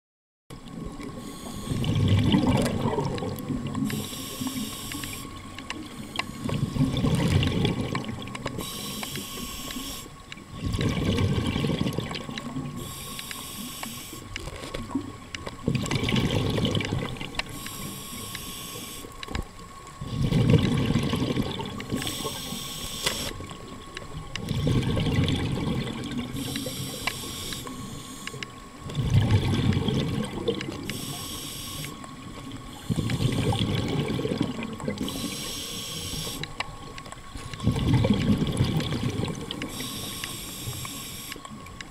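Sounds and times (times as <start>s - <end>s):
exhaled bubbles rushing: 0.5s - 4.6s, 6.4s - 8.6s, 10.4s - 12.8s, 14.8s - 17.5s, 20.0s - 22.5s, 23.4s - 27.0s, 28.8s - 30.9s, 32.1s - 35.5s, 37.6s - 39.8s
regulator hissing inhale: 1.2s - 1.8s, 3.9s - 6.6s, 8.6s - 10.2s, 12.8s - 14.3s, 17.5s - 19.2s, 22.0s - 23.4s, 26.4s - 28.5s, 30.8s - 32.1s, 32.7s - 33.6s, 35.0s - 36.5s, 39.7s - 41.4s.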